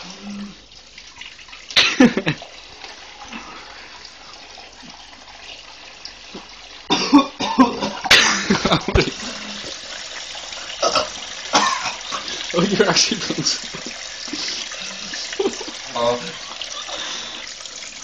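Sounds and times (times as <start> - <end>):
person coughing and spluttering: 1.7 - 2.4, 6.9 - 9.7, 10.8 - 15.8.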